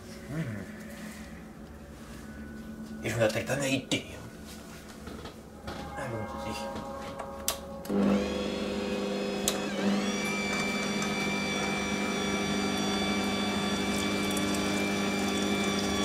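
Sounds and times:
mixer motor humming: 0:07.9 - 0:16.0.

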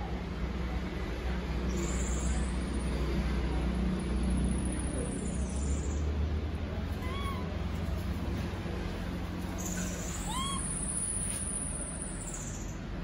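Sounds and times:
baby monkey cooing: 0:07.0 - 0:07.6, 0:09.8 - 0:11.2.

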